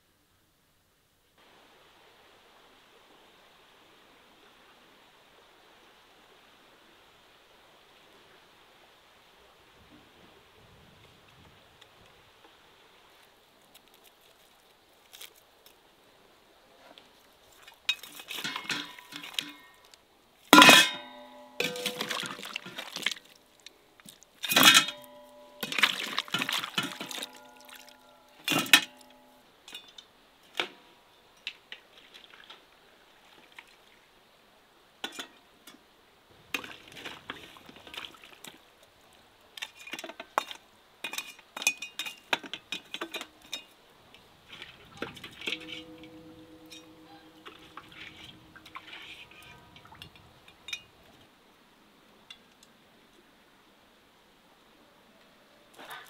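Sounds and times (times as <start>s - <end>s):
skimmer scraping metal cauldron: 17.9s - 19.8s, 20.6s - 23.3s, 24.4s - 29.9s, 44.4s - 50.9s
sharp metal clanks ringing: 20.6s - 22.4s, 24.5s - 29.9s, 45.4s - 49.4s.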